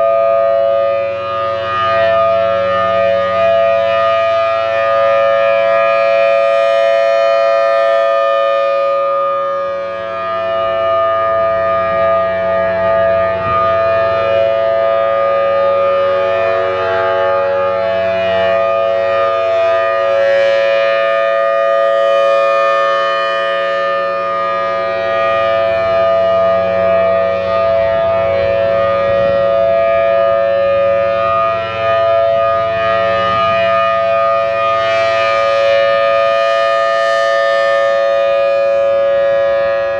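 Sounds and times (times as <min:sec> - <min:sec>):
warning siren steady tone: 0:00.0 - 0:39.9.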